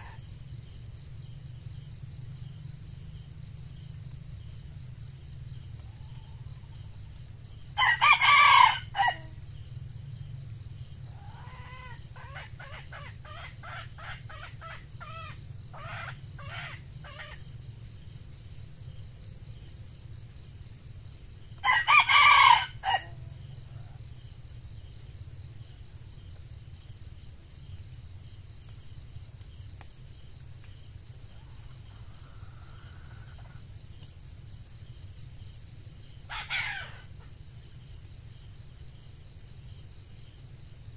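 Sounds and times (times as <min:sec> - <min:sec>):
rooster crowing: 0:07.8 - 0:09.4, 0:21.6 - 0:23.3, 0:36.3 - 0:37.2.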